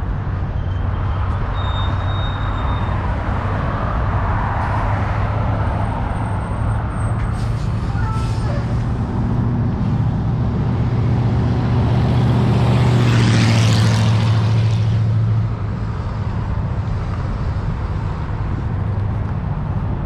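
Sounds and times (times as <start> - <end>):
steady road noise: 0.0 - 20.0
vehicle passing close: 8.6 - 20.0.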